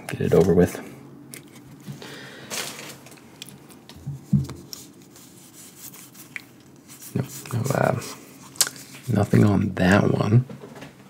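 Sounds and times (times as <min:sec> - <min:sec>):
foil wrapper and cards rustling: 0:02.4 - 0:03.9
foil wrapper crinkle: 0:02.4 - 0:04.0.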